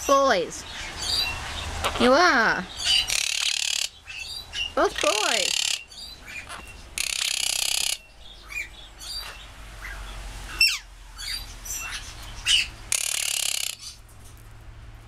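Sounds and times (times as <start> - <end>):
parrots squawking: 0.7 - 14.0
parrot chirps: 0.8 - 14.0
sliding bird call: 12.5 - 14.0.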